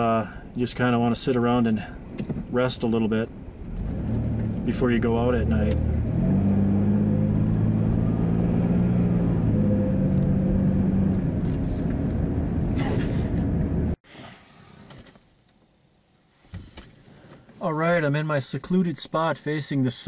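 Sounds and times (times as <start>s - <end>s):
engine hum and road rumble: 0.0s - 14.0s
even engine tones: 3.5s - 14.0s.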